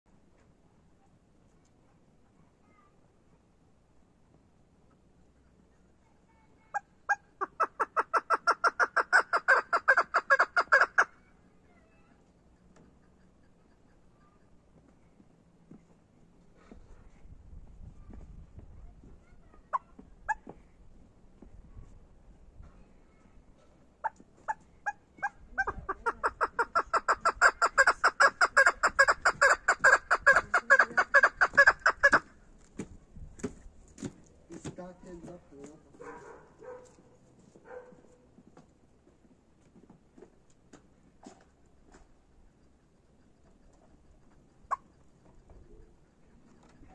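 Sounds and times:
partridge calling: 0:07.1 - 0:11.1, 0:24.0 - 0:32.3.

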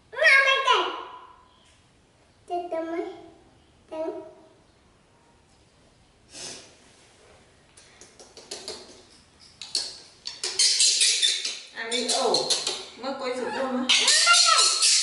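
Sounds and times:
short breathy puff: 0:06.3 - 0:06.8.

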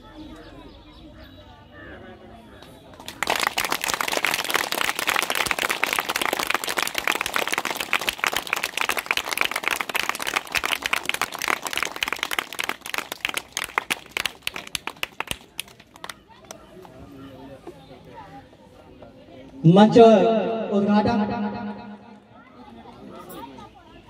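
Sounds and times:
crowd applauding: 0:03.0 - 0:16.6.

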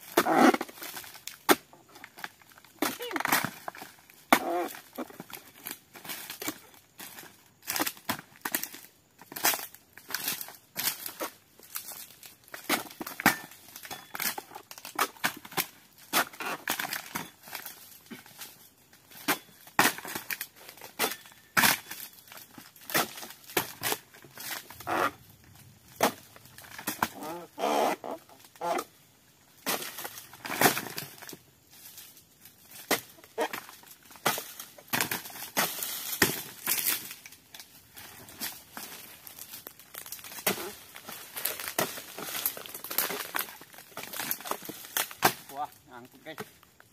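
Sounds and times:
palm fronds crackling and tearing: 0:00.0 - 0:46.9
sickle hacking fronds: 0:29.6 - 0:46.7.

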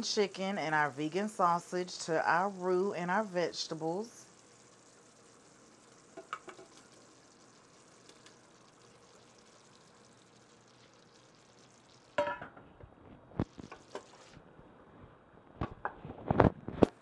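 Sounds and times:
faint sizzle in a pot: 0:00.0 - 0:17.0
food pieces dropping into pot: 0:06.2 - 0:06.9, 0:12.2 - 0:12.6.

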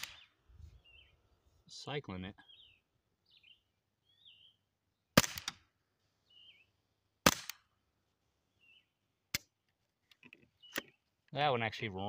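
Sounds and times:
suppressed rifle shots: 0:00.0 - 0:00.3, 0:05.2 - 0:05.6, 0:07.2 - 0:07.6
faint bird chirps: 0:00.0 - 0:01.6, 0:02.3 - 0:05.0, 0:06.1 - 0:06.8, 0:08.5 - 0:09.0, 0:10.3 - 0:11.1.

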